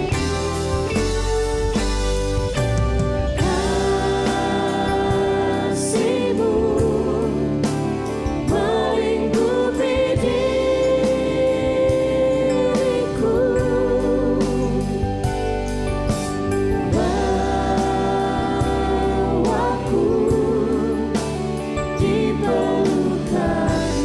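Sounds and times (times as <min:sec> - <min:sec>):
band playing: 0:00.0 - 0:20.1
person singing worship song: 0:03.4 - 0:07.7, 0:08.4 - 0:15.1, 0:16.8 - 0:24.0.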